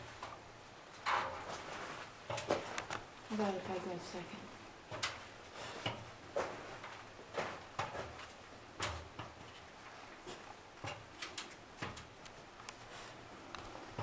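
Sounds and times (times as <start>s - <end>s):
knocks on metal ladder rungs: 4.9s - 9.7s, 10.3s - 12.2s.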